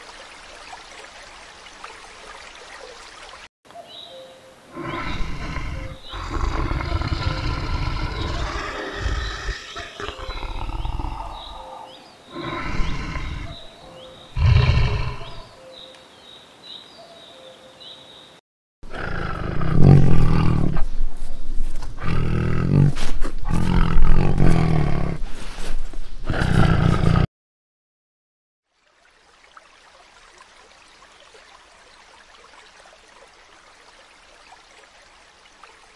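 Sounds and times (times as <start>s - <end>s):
leopard snarling and growling: 4.7s - 13.7s, 14.3s - 15.5s, 18.8s - 21.0s, 21.6s - 27.3s
lion roaring: 4.7s - 13.7s, 14.3s - 15.5s, 18.9s - 20.9s, 21.8s - 25.2s, 26.2s - 27.3s.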